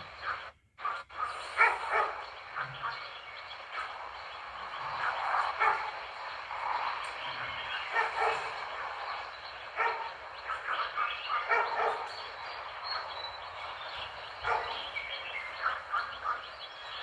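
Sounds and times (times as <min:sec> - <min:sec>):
steady hiss: 0:00.0 - 0:17.0
dog barking: 0:00.2 - 0:03.0, 0:05.0 - 0:06.0, 0:07.8 - 0:08.9, 0:09.7 - 0:13.1, 0:14.4 - 0:15.0, 0:15.6 - 0:16.5.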